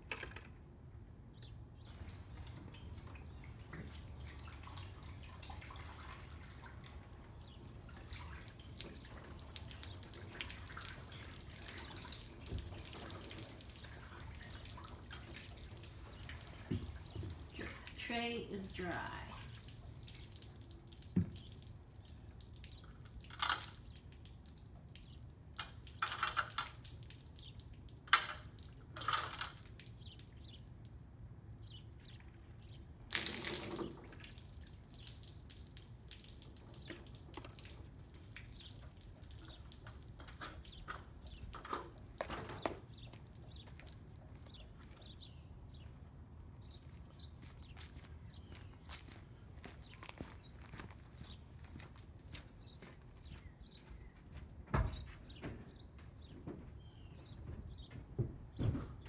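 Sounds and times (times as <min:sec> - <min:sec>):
water splashing on metal roof: 0:01.9 - 0:45.2.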